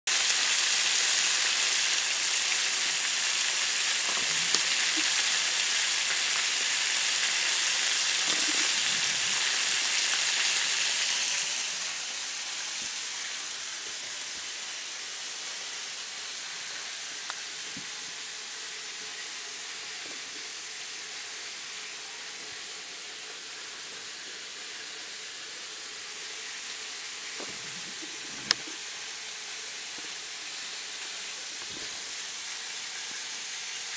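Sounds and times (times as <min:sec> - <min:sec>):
fish sizzling in hot oil: 0:00.1 - 0:33.9.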